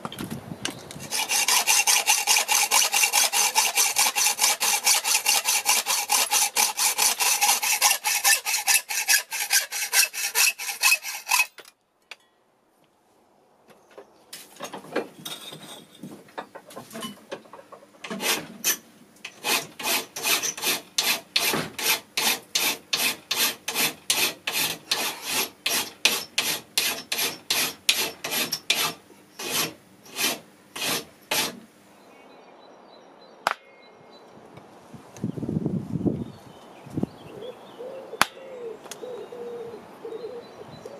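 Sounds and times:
hacksaw cutting steel: 1.0s - 11.7s, 18.0s - 31.6s
hand file rasping on steel: 1.0s - 11.7s, 18.0s - 31.6s.

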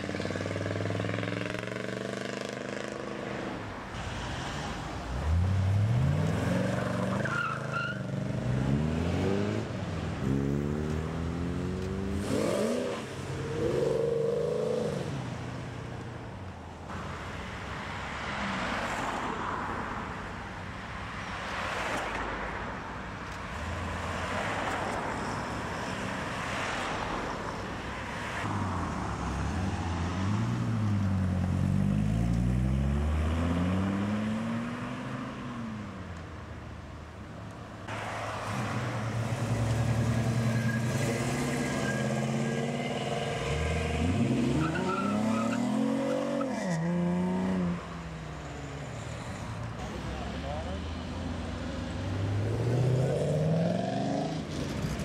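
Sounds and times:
cars accelerating away: 29.7s - 35.3s.

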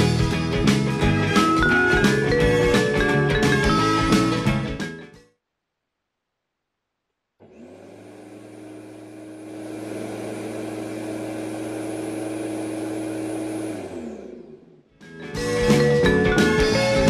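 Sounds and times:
electric lawn mower humming: 7.4s - 14.8s
mower spinning down: 7.4s - 17.0s.

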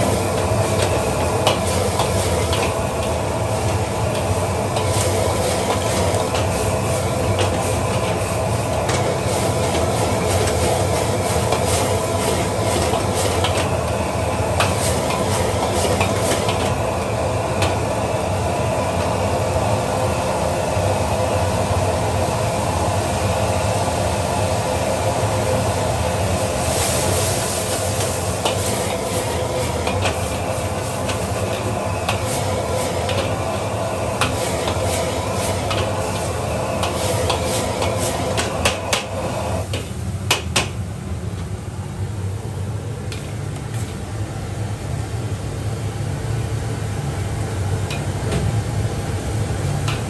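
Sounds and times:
meat sizzling in a wok: 0.0s - 18.4s, 19.4s - 40.0s.

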